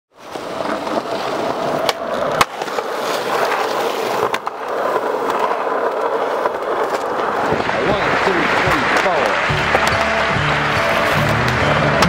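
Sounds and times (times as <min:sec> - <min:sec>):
skateboard wheels rolling on concrete: 0:00.1 - 0:12.0
skateboard landing clack: 0:01.8 - 0:07.7, 0:08.6 - 0:12.0.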